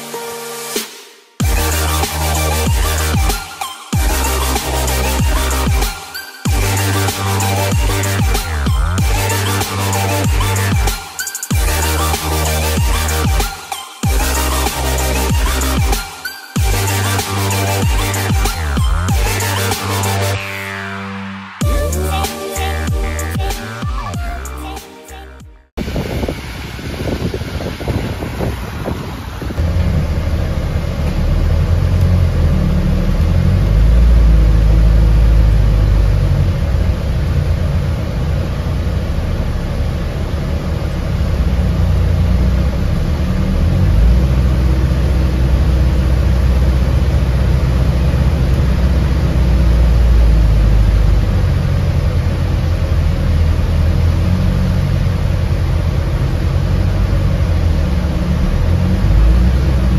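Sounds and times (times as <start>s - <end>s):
bus drivetrain and road rumble: 6.6s - 10.9s, 25.7s - 59.9s.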